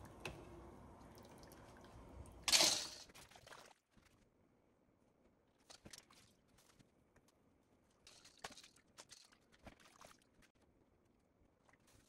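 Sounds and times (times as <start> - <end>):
low steady hum: 0.0 - 3.1.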